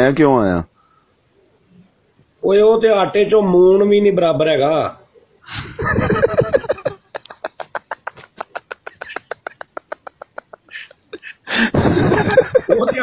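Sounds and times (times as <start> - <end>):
rapid breathy laughter: 5.4 - 13.0.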